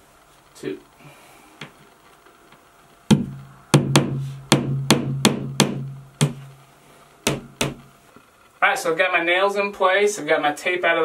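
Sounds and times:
hammer striking nail: 0:03.1 - 0:06.4, 0:07.3 - 0:07.8.

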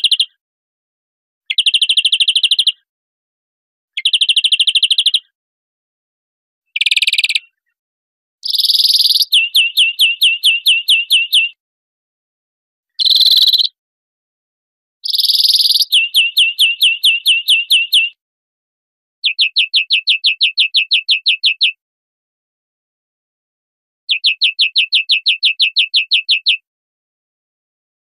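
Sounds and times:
finch singing: 0:00.0 - 0:00.4, 0:01.5 - 0:02.7, 0:04.0 - 0:05.2, 0:06.8 - 0:07.5, 0:08.4 - 0:11.6, 0:13.0 - 0:13.8, 0:15.0 - 0:18.2, 0:19.2 - 0:21.8, 0:24.1 - 0:26.6.

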